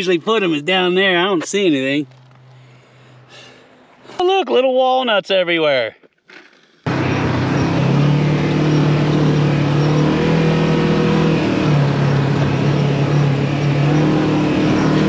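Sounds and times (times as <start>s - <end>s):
road noise rush: 0.0s - 4.4s, 6.9s - 15.0s
off-road vehicle engine drone: 6.9s - 15.0s.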